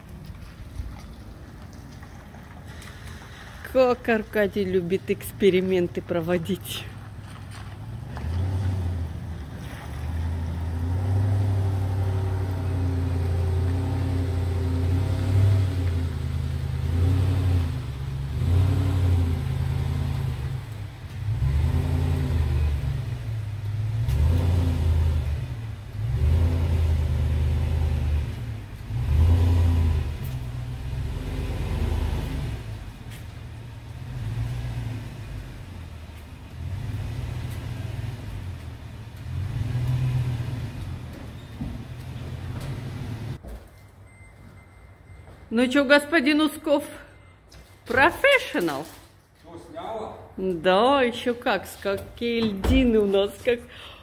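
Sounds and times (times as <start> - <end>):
truck engine revving: 2.7 - 43.4.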